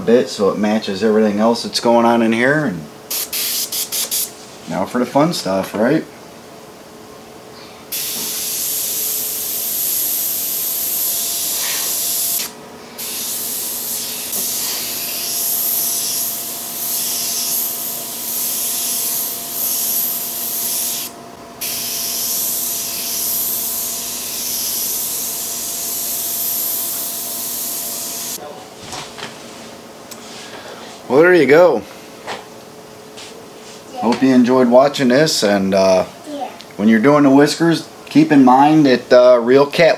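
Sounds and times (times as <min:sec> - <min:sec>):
airbrush hissing: 0:03.1 - 0:04.3, 0:07.9 - 0:28.4.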